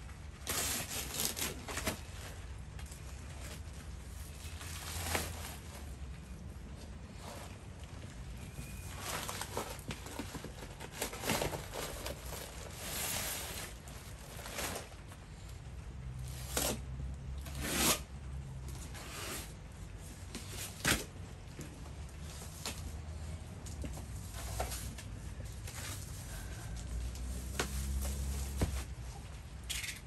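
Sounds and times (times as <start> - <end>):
plastic bag rustling and tearing: 0.0 - 15.3.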